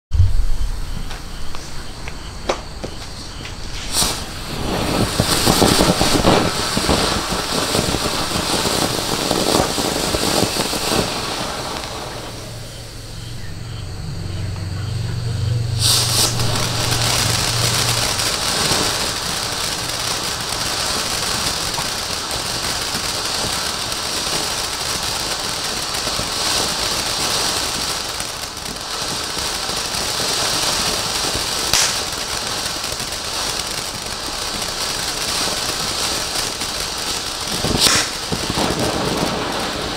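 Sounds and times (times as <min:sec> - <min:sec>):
sharp pops: 0:00.1 - 0:12.8, 0:15.8 - 0:23.6, 0:31.6 - 0:32.4, 0:37.5 - 0:39.4
firework fountain crackling: 0:00.1 - 0:39.9
hissing spray of sparks: 0:00.7 - 0:13.5, 0:15.6 - 0:39.9.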